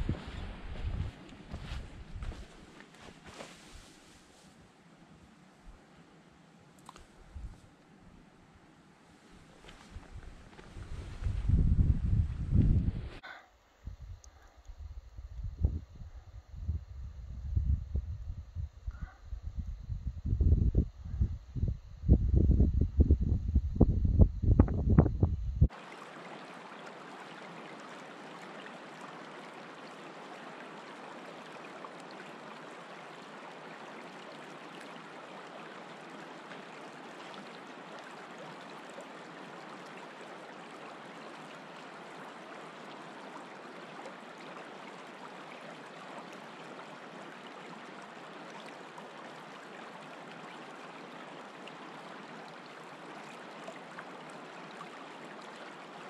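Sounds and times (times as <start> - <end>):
river flowing over stones: 25.7 - 56.0.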